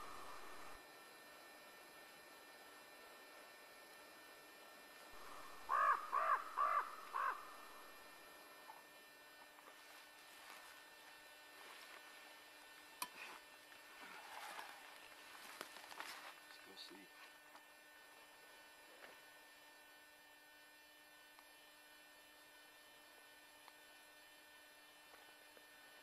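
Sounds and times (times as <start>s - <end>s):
background hiss: 0.0s - 0.8s, 5.0s - 8.8s
crow cawing: 5.2s - 8.1s.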